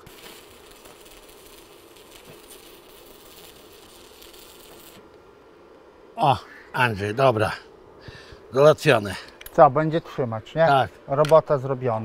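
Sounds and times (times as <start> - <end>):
electric welding arc hissing: 0.0 - 5.8.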